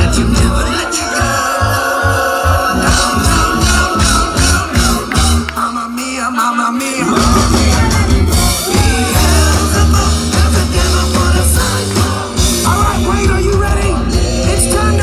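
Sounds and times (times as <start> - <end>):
bass guitar: 0.0 - 15.0
drums: 0.0 - 15.0
man singing: 0.0 - 15.0.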